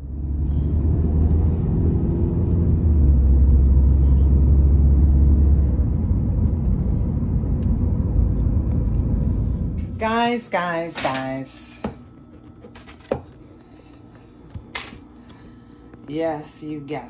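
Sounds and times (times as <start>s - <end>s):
car interior rumble: 0.1s - 10.0s.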